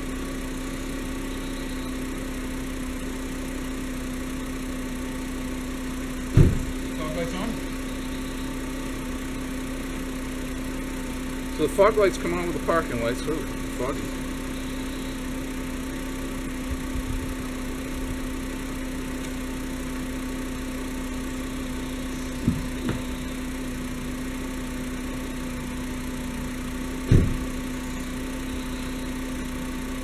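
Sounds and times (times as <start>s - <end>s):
car engine idling: 0.0s - 30.0s
short knock: 6.3s - 6.7s, 27.1s - 27.4s
loud thump: 6.3s - 6.8s, 22.4s - 23.1s, 27.0s - 27.5s.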